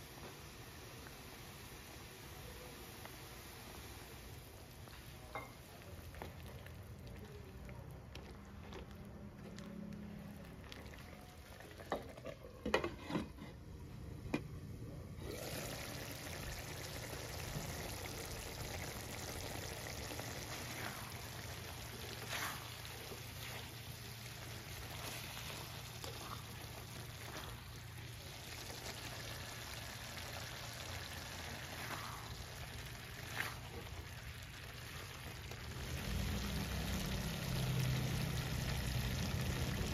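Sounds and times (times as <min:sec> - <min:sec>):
spatula scraping and knocking pan: 0:12.0 - 0:13.6
meat sizzling in a pan: 0:15.4 - 0:39.9.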